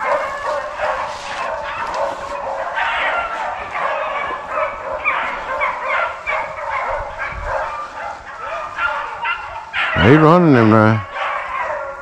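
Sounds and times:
hounds baying: 0.0 - 12.0.

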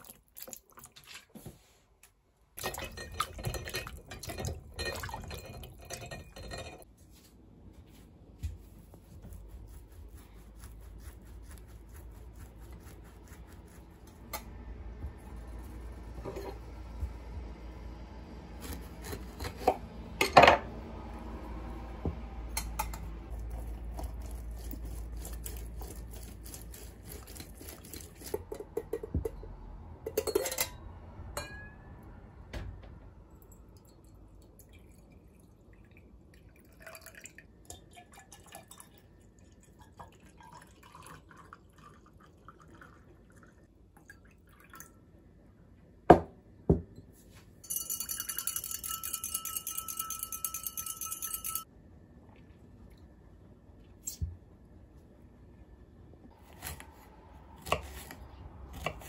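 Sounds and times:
knife cutting lemon: 18.6 - 19.8, 23.3 - 28.9, 56.4 - 59.0
lemon juiced on reamer: 23.3 - 28.7
liquid pouring: 33.8 - 45.0
metal and glass clinks: 47.6 - 51.6.

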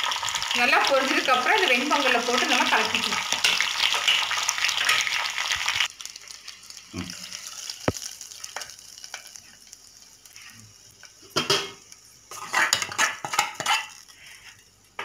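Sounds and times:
hot oil sizzling: 0.0 - 15.0
metal spoon scraping pot: 11.5 - 14.0.

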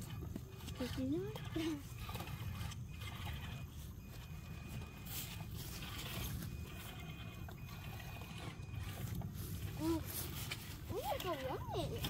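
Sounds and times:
faint high whine: 0.0 - 12.0.

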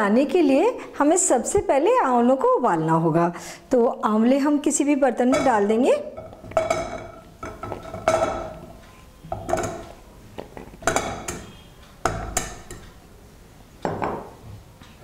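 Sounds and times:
metallic ring of pot: 5.3 - 10.0, 10.8 - 12.9
fruit knocking into steel pot: 10.4 - 12.8.

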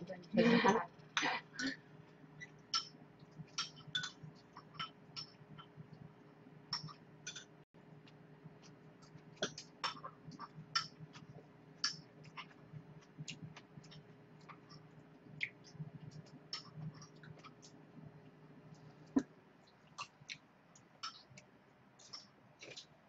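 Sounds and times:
low steady hum: 0.0 - 23.0
metal spoon against ceramic bowl: 3.6 - 5.4
chewing clicks: 6.7 - 17.8.

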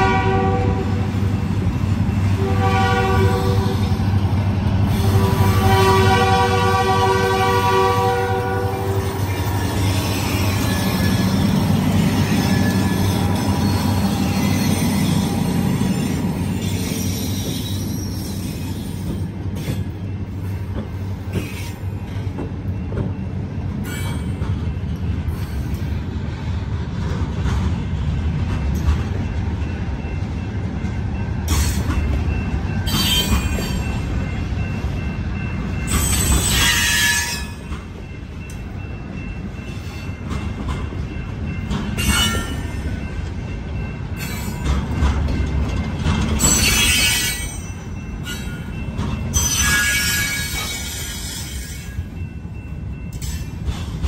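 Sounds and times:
train horn: 0.0 - 1.2, 2.3 - 4.0, 4.9 - 9.2
diesel locomotives rumbling: 0.0 - 54.0
train wheel clatter: 26.8 - 54.0.

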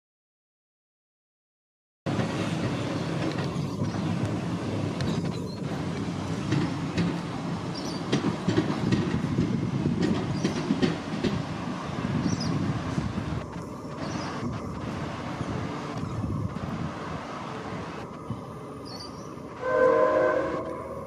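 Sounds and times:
wheels clicking over rail joints: 2.1 - 11.6
tram wheels rumbling on rail: 2.1 - 21.0.

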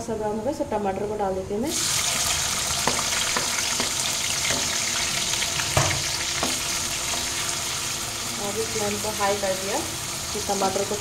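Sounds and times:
tomatoes sizzling in hot oil: 1.7 - 11.0
spoon clacking against pan: 2.7 - 7.4.

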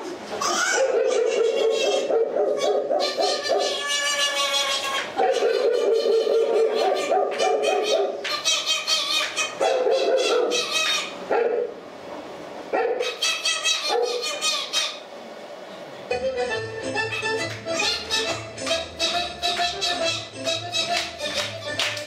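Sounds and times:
person making dog-like barks and howls: 0.5 - 8.2, 9.5 - 10.8.

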